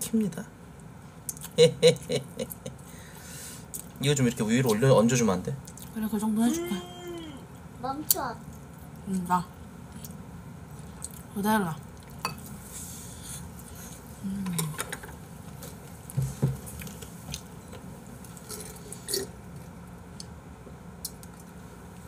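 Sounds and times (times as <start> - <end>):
person humming: 6.5 - 7.5.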